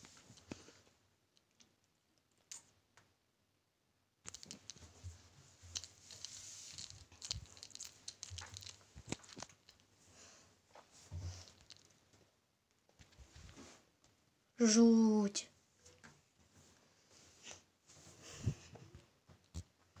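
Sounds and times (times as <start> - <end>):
faint rustling and crackling: 4.3 - 14.2.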